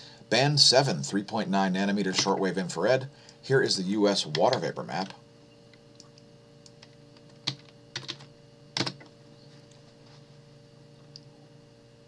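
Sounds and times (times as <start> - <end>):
faint steady hum: 0.0 - 12.0
keyboard typing: 7.3 - 9.0.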